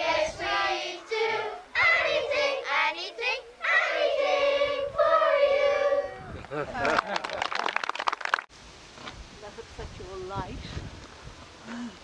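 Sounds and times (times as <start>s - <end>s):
children singing together: 0.0s - 6.2s.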